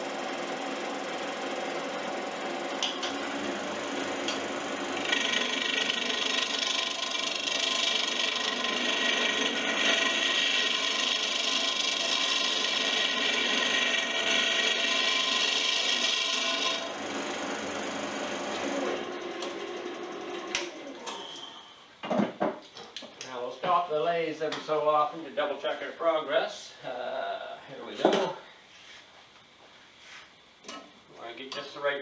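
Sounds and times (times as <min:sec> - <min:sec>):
lathe running: 0:00.0 - 0:21.7
turning tool scraping wood: 0:03.6 - 0:21.6.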